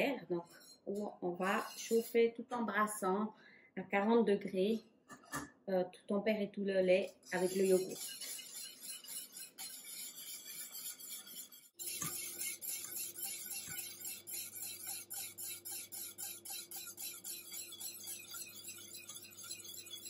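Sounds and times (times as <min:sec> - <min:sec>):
whisk stirring in metal saucepan: 0:00.0 - 0:02.3, 0:06.9 - 0:20.0.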